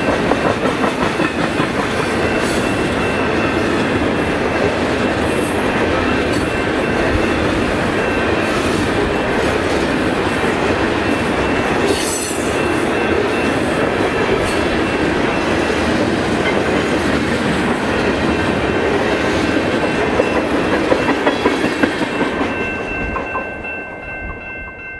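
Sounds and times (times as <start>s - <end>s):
wheels clacking over rail joints: 0.0s - 8.2s
freight train rolling past: 0.0s - 24.9s
level-crossing warning bell: 0.0s - 24.9s.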